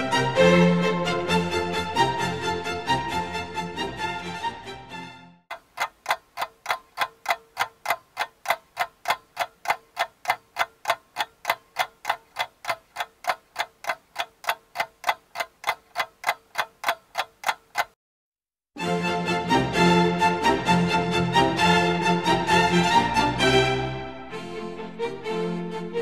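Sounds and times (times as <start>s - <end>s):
regular even ticking: 5.5s - 18.0s.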